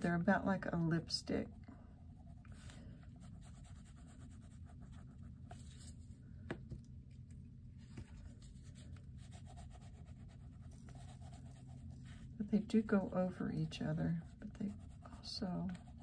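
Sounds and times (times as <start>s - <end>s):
low steady hum: 0.0s - 16.0s
pastels rubbing on paper: 8.4s - 16.0s.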